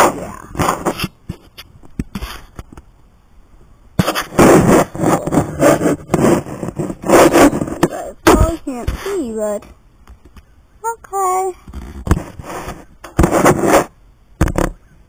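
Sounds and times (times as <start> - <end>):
camera rubbing and scraping: 0.0 - 2.8, 4.0 - 9.7, 11.6 - 14.9
faint microphone clicks: 8.5 - 10.5.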